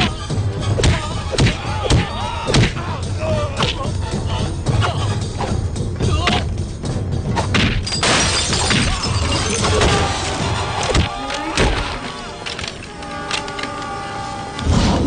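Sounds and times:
background music: 0.0s - 15.0s
crash of something smashing: 7.5s - 12.9s.

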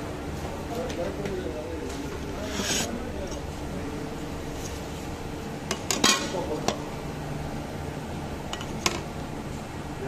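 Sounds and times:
low machine hum: 0.0s - 10.0s.

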